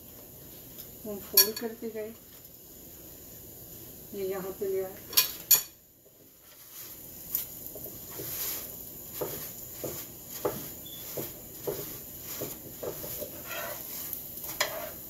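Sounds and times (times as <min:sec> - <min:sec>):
flatbread sizzling in oil: 0:00.0 - 0:15.0
cloth patting bread: 0:06.5 - 0:13.4.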